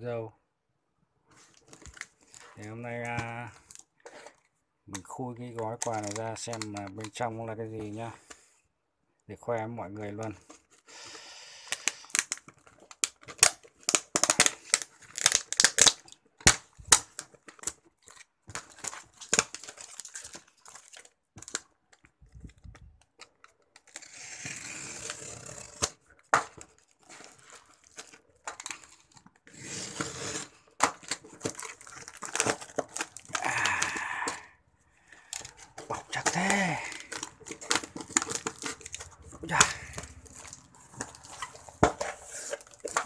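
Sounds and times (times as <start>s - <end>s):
box cutter slicing tape: 23.9s - 26.0s, 29.5s - 31.6s
paper ripping: 23.9s - 26.0s, 29.5s - 33.6s.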